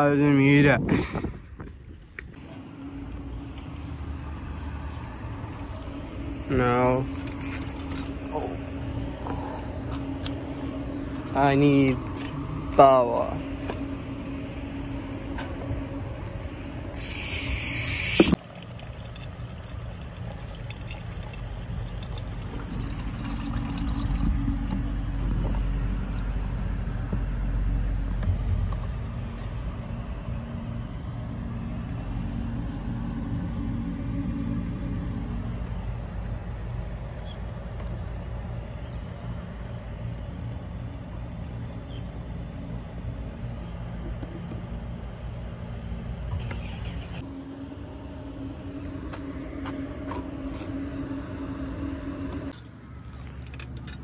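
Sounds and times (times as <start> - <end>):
low steady rumble: 0.0 - 54.0
water trickling into plastic bottle: 18.4 - 24.7, 35.9 - 40.7.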